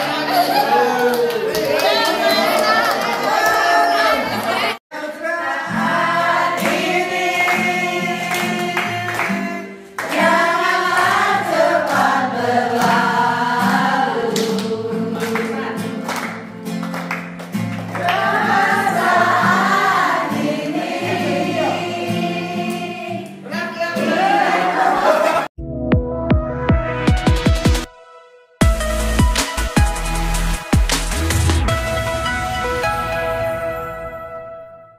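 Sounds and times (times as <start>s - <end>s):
group of voices singing: 3.2s - 16.0s, 18.0s - 25.5s
hand clapping: 14.4s - 18.3s.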